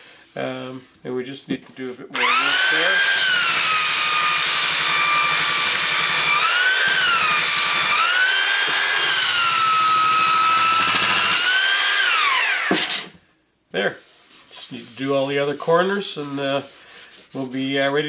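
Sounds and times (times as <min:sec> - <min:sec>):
belt sander sanding wood: 0:02.2 - 0:12.6, 0:14.6 - 0:18.0.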